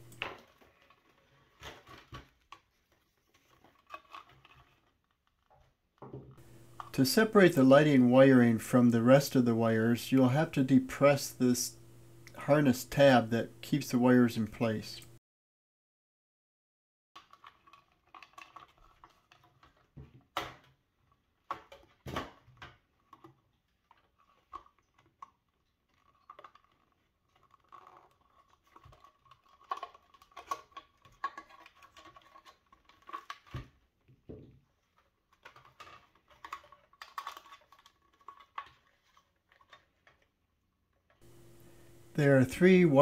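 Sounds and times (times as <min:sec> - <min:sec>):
plastic parts clicking and scraping: 0:00.0 - 0:07.0, 0:17.2 - 0:42.0.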